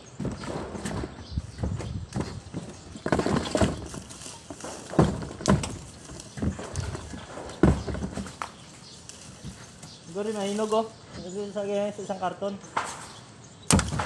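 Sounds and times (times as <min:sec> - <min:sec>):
light rustling: 0:00.0 - 0:11.4
hollow knocks and thumps: 0:00.2 - 0:08.6.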